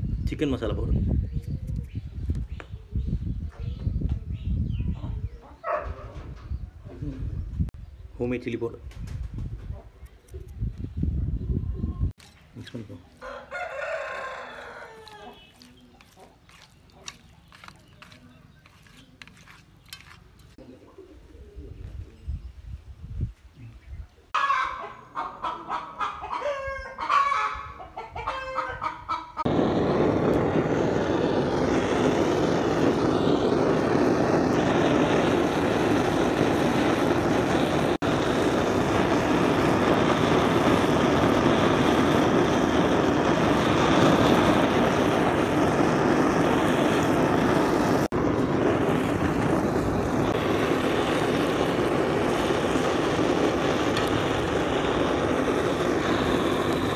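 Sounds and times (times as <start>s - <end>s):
hens clucking: 24.4s - 29.5s.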